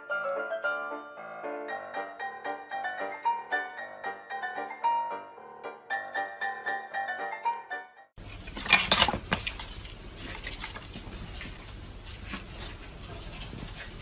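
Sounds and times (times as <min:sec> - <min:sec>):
low steady hum: 0:08.2 - 0:14.0.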